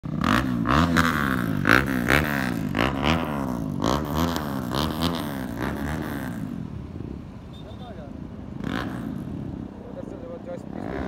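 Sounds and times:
motorcycle engine revving: 0.0 - 7.7, 8.4 - 11.0.

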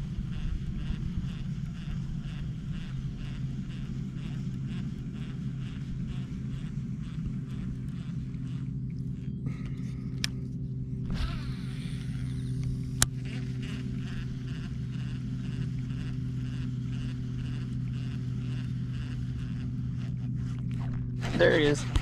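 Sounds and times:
fishing reel spool whirring: 0.0 - 22.0
low engine-like hum: 0.0 - 22.0
fishing reel cranking: 11.0 - 22.0.

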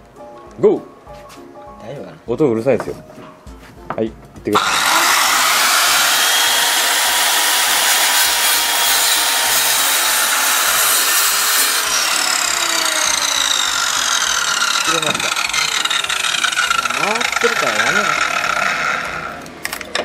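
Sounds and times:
miter saw cutting wood: 4.6 - 19.6.

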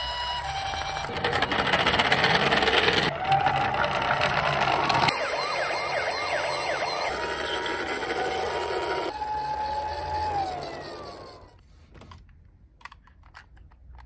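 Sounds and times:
toy ambulance sirens: 0.0 - 1.1, 5.1 - 11.6.

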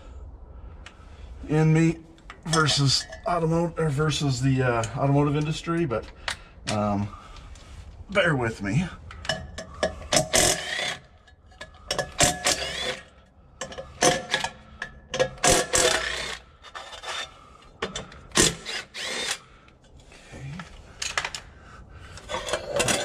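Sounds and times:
cordless driver whirring: 10.3 - 11.1, 12.2 - 13.1, 15.4 - 16.4, 18.4 - 19.4.

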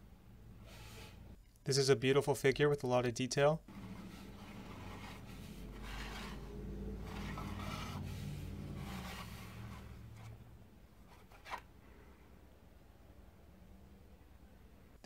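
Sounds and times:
plastic scraping on tabletop: 3.7 - 10.4, 11.0 - 11.7.

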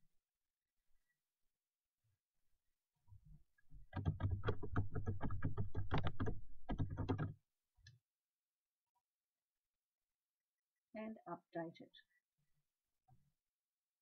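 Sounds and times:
keyboard keys tapping: 3.9 - 7.3.

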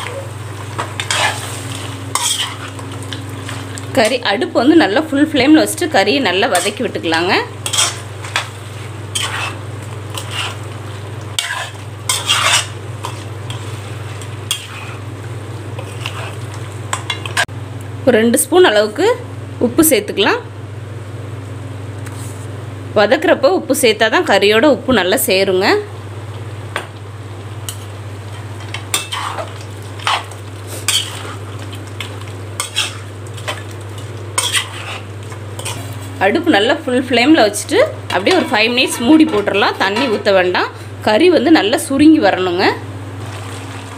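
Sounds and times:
meat sizzling: 0.0 - 17.5, 26.4 - 39.9, 43.1 - 43.9
steady low hum: 0.0 - 43.9
metal spatula scraping a pan: 0.8 - 2.8, 6.4 - 7.0, 7.6 - 10.7, 11.4 - 15.0, 15.8 - 17.5, 28.7 - 31.4, 32.6 - 33.6, 34.4 - 35.9, 38.1 - 40.4.

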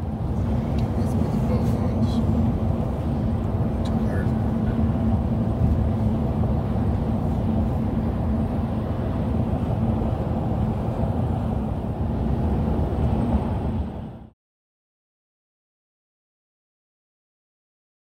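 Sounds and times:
car road and engine drone: 0.0 - 14.4.

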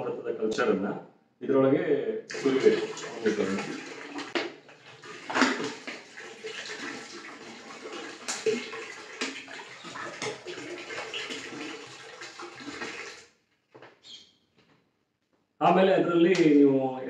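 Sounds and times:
liquid pouring into water: 2.3 - 13.3.

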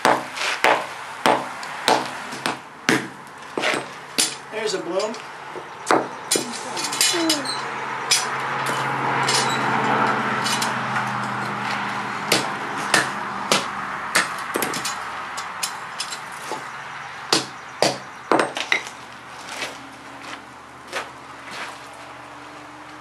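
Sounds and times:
hammer striking hot iron: 0.0 - 3.2, 12.3 - 15.0, 17.3 - 18.8.

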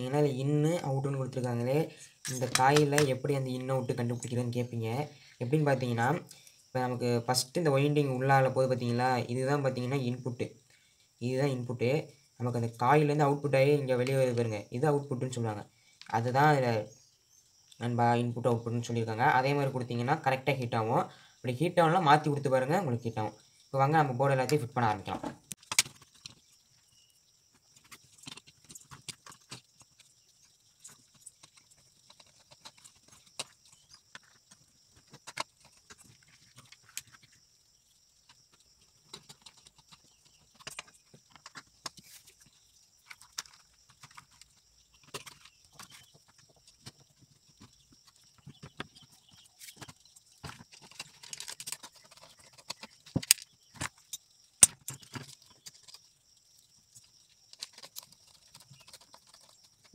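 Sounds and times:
plastic and metal parts clicking: 25.2 - 26.4, 49.7 - 56.0, 57.5 - 59.9.

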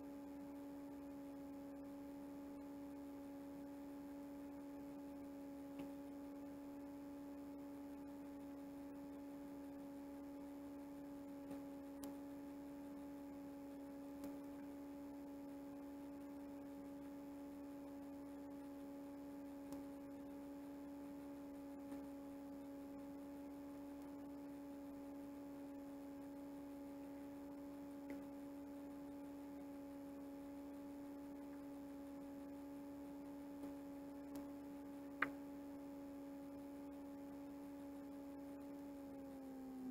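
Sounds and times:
faint low hum: 0.0 - 39.9
soft faint ticks: 5.7 - 6.1, 11.4 - 12.2, 14.2 - 14.7, 19.6 - 20.0, 28.0 - 28.3, 33.6 - 34.6.

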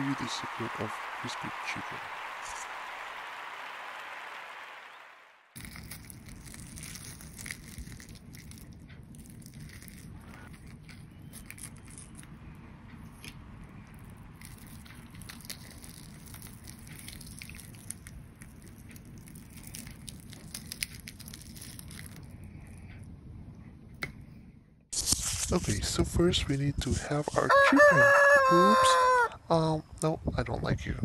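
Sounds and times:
fried chicken crust crackling: 5.6 - 12.4, 13.8 - 22.4
low steady background rumble: 5.6 - 24.9, 29.3 - 31.0.

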